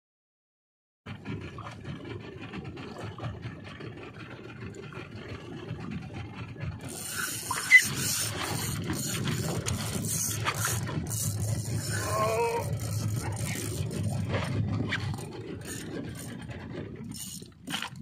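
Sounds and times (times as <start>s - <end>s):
water sloshing against hull: 1.1s - 18.0s
fishing reel gears whirring: 6.7s - 18.0s.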